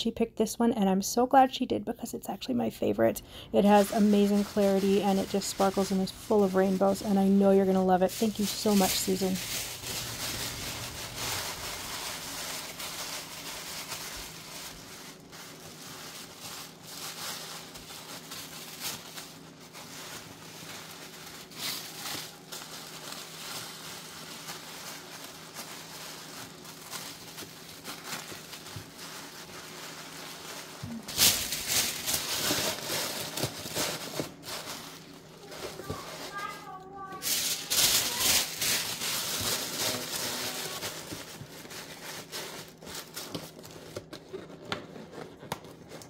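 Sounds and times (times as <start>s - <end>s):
tissue paper rustling: 3.6s - 46.0s.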